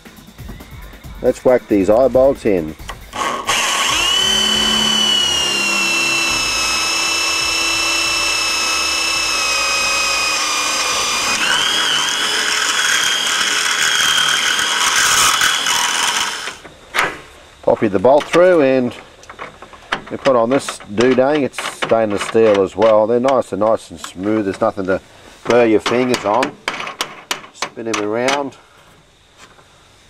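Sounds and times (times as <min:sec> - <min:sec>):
electric drill boring through metal: 0:03.1 - 0:16.7.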